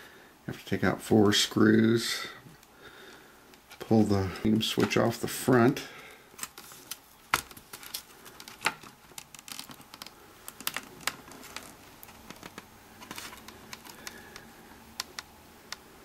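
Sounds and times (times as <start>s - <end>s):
hands clicking and tapping cassette deck: 12.1s - 15.8s.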